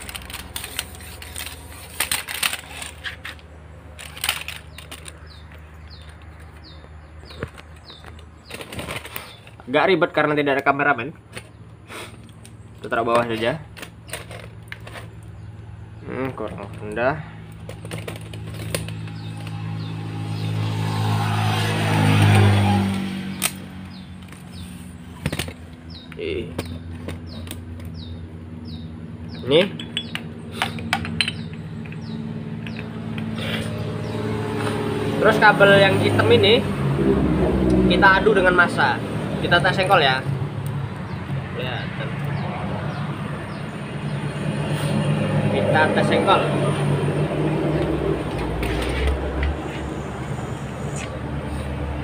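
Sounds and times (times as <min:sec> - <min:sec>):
vehicle engine passing by: 0:15.0 - 0:52.0.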